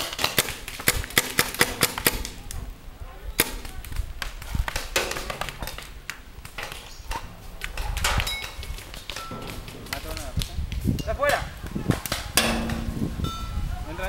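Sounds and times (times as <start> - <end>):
paintball markers firing: 0.0 - 2.4.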